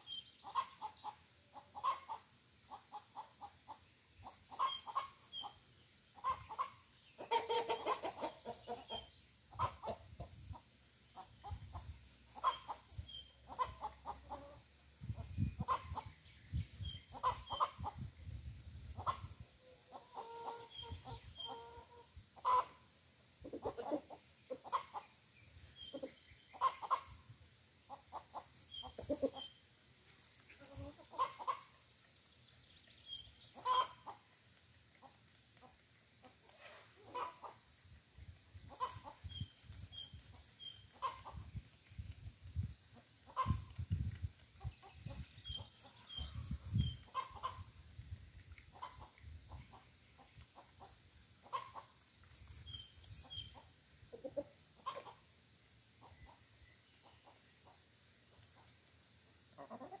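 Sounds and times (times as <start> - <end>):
chickens clucking softly: 0.0 - 60.0
songbird chirping: 0.0 - 60.0
chickens pecking on concrete: 23.4 - 25.3, 28.0 - 55.3.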